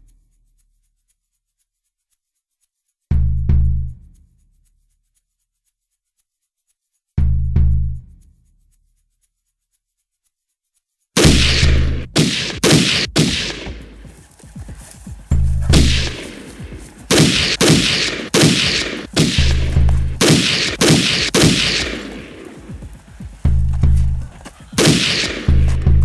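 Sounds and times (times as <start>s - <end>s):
gunshots with ringing tail: 11.2s - 14.0s, 15.6s - 22.9s, 24.8s - 26.0s.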